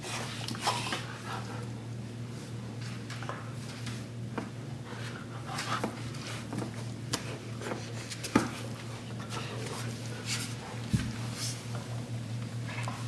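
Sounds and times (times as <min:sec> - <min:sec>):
animals scuffling on tile floor: 0:00.0 - 0:13.0
steady low hum: 0:00.0 - 0:13.0.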